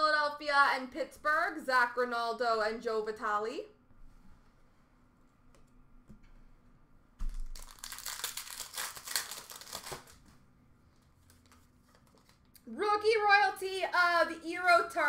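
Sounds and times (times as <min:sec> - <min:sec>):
plastic wrapper tearing and crinkling: 0:07.2 - 0:10.3.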